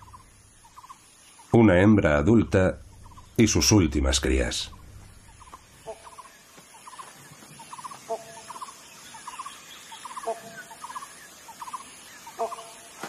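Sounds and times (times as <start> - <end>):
rapid rattling animal calls: 0.0 - 13.0
lower animal call: 2.7 - 3.7, 4.6 - 13.0.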